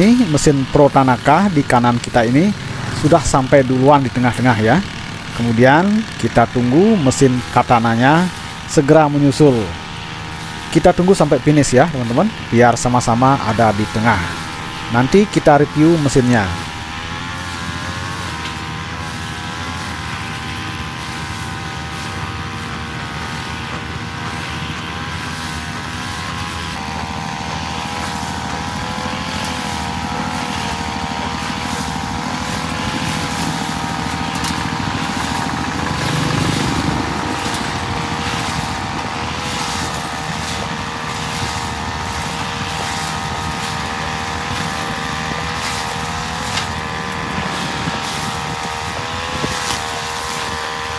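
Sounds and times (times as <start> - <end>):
brush cutter cutting grass: 0.0 - 50.9.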